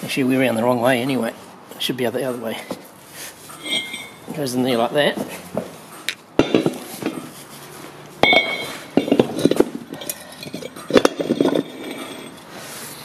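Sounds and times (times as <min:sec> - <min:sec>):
light metallic knocks and clinks: 0:03.6 - 0:04.3, 0:06.4 - 0:07.3, 0:08.2 - 0:12.4
metal wheel spacer clanking: 0:03.6 - 0:04.3, 0:06.4 - 0:07.4, 0:08.2 - 0:12.5.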